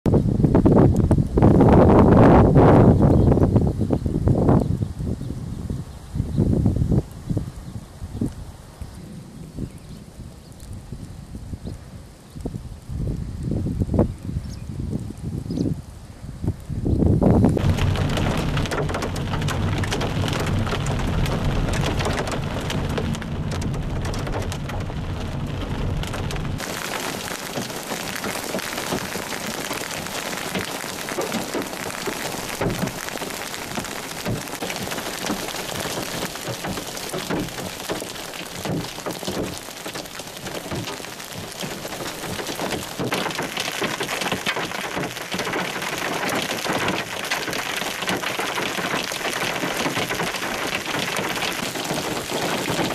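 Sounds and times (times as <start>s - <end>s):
hail and rain on gravel: 17.2s - 52.9s
road rumble: 17.2s - 52.9s
hail and rain on vehicle: 17.5s - 52.9s.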